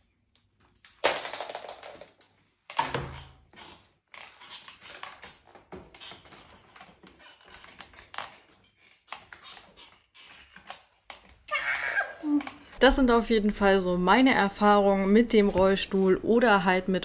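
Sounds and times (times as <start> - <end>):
rustling and handling noises: 3.4 - 13.8.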